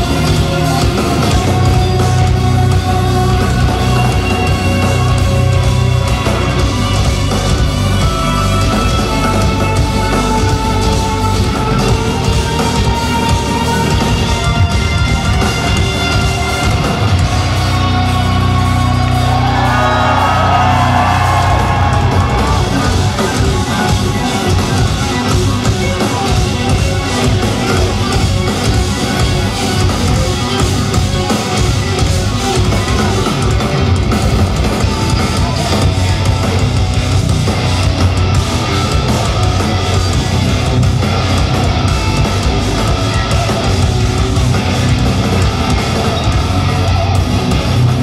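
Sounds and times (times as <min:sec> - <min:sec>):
drums: 0:00.0 - 0:48.0
electric guitars playing riffs: 0:00.0 - 0:48.0
live progressive metal band: 0:00.0 - 0:48.0
crowd shouting and whooping: 0:16.3 - 0:48.0.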